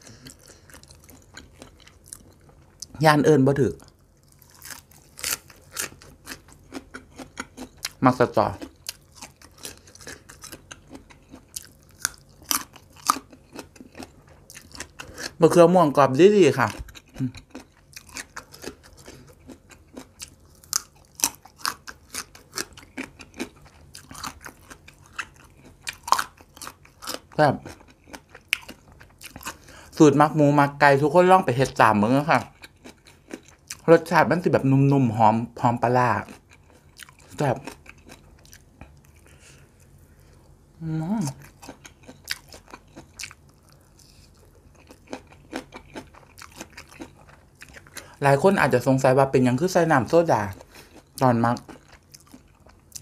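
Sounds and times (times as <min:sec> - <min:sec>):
crunchy chewing of eggplant: 0:00.0 - 0:53.0.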